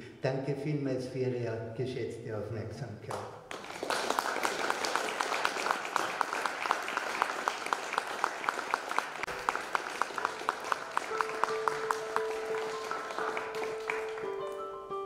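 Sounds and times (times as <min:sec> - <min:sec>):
audience applause: 0:03.5 - 0:14.8
held piano notes: 0:09.3 - 0:15.0.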